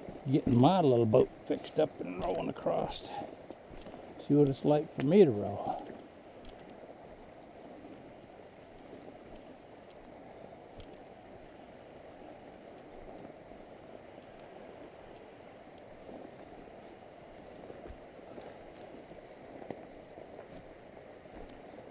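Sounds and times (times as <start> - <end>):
river current rushing: 0.0 - 21.9
faint clicks: 3.5 - 5.1, 5.8 - 6.8, 8.2 - 10.2, 10.8 - 11.3, 12.5 - 14.5, 15.1 - 15.9.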